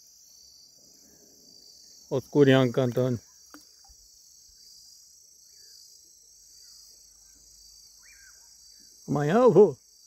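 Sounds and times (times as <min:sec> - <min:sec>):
crickets chirping: 0:00.0 - 0:10.0
bird whistled calls: 0:08.0 - 0:08.4.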